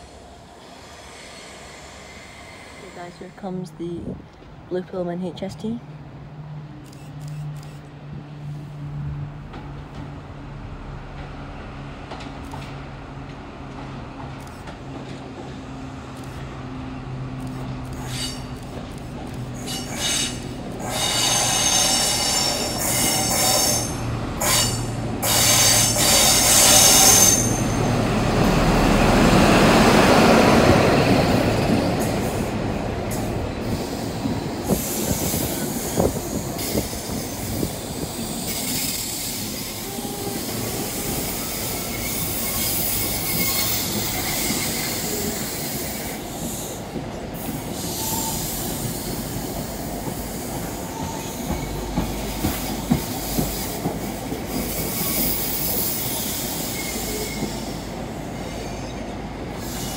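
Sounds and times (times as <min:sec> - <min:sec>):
train rushing past: 0:00.0 - 0:59.9
high-pitched wheel squeal: 0:38.3 - 0:46.2, 0:47.8 - 0:48.7.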